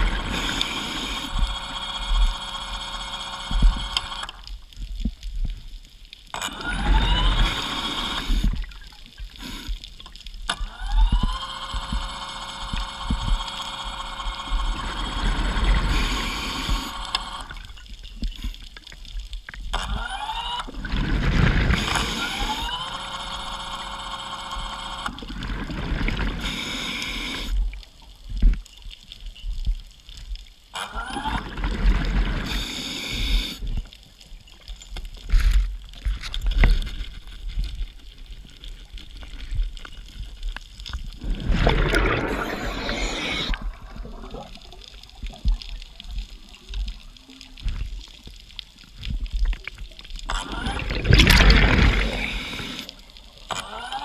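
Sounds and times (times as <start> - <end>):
electric motor and propeller whining: 0.0 - 4.4, 6.4 - 8.5, 10.6 - 17.6, 21.7 - 25.3, 50.3 - 54.0
low bubbling rumbles: 41.2 - 46.3, 50.2 - 52.6.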